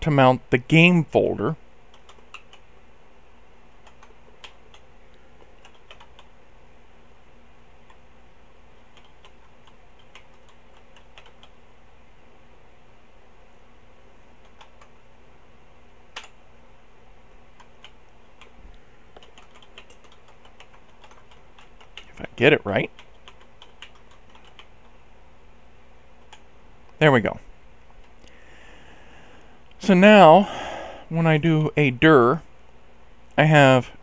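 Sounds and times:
faint steady hum: 0.0s - 34.0s
computer keyboard key clicks: 1.9s - 2.6s, 3.8s - 4.8s, 5.5s - 6.3s, 8.9s - 11.6s, 14.4s - 14.9s, 19.2s - 22.1s, 22.9s - 24.7s.

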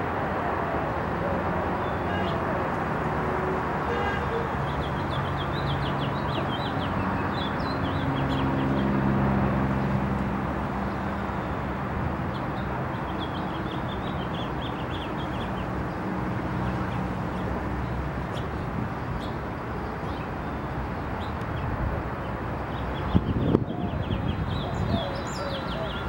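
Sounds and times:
city traffic noise: 0.0s - 26.0s
finch singing: 22.8s - 26.0s.

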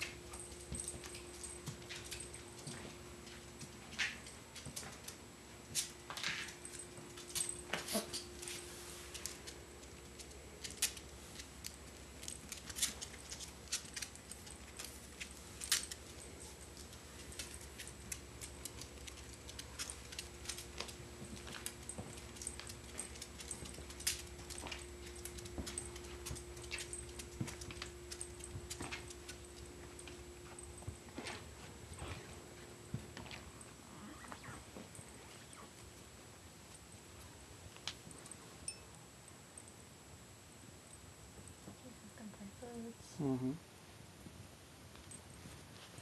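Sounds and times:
dog claws clicking on tile: 9.1s - 30.1s.

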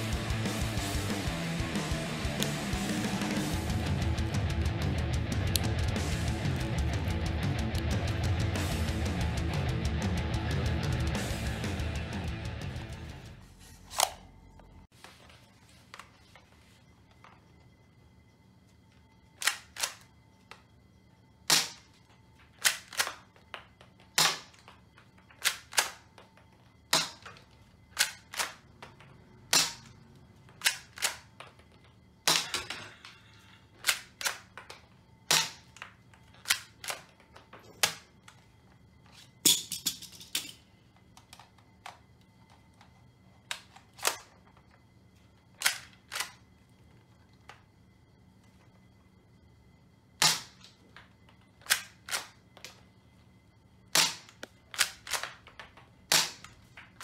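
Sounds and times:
toy pistol plastic snaps: 19.4s - 20.1s, 22.6s - 23.3s, 25.4s - 26.0s, 28.0s - 28.6s, 30.6s - 31.3s, 33.8s - 37.2s, 43.5s - 44.3s, 45.6s - 46.4s, 51.6s - 52.8s, 54.0s - 56.6s.

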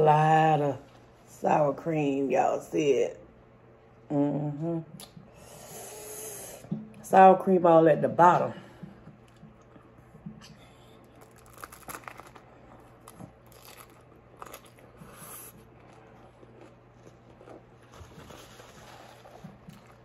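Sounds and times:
chewing with small crunches: 8.8s - 20.0s.

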